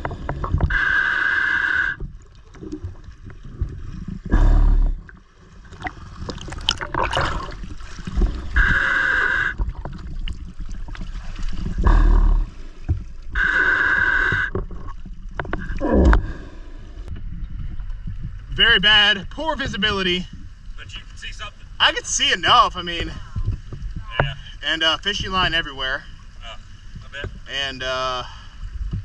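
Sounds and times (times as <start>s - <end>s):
waves thumping over camera: 0.0s - 1.2s, 2.0s - 27.9s
water splashing and gurgling: 0.0s - 18.6s
hissing bursts: 8.6s - 9.6s, 13.4s - 14.5s.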